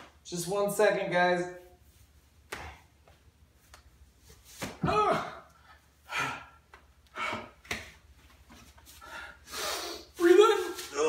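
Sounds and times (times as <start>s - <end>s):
man grunting and huffing: 4.9s - 7.6s.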